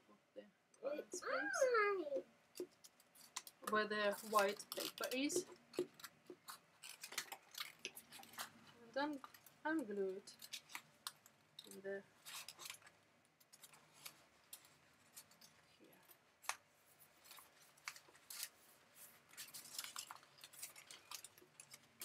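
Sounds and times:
scissors snipping paper: 2.6s - 9.4s, 19.3s - 22.0s.

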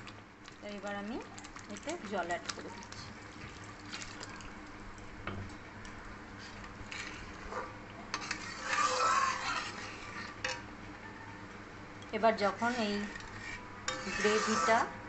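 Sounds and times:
metal spatula scraping a pan: 6.9s - 7.4s, 8.1s - 10.6s, 12.4s - 14.9s.

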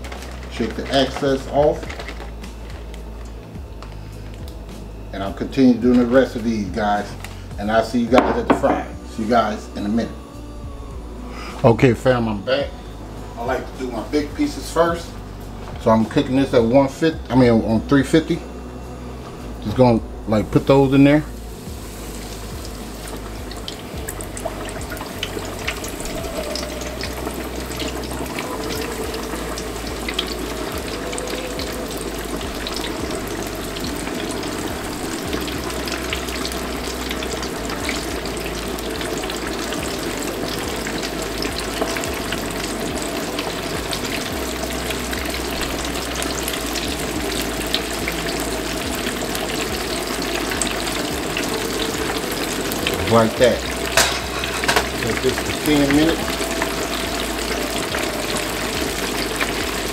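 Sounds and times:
chicken deep-frying in oil: 21.7s - 59.9s.

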